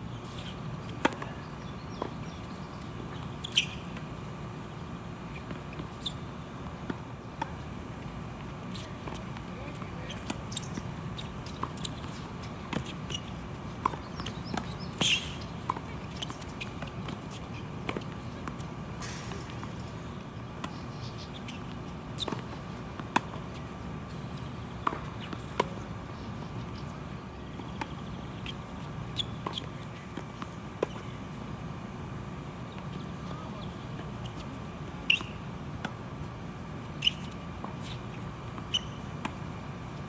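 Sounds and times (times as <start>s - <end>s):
steady background hum: 0.0s - 40.0s
tennis balls struck and bouncing: 0.3s - 31.9s.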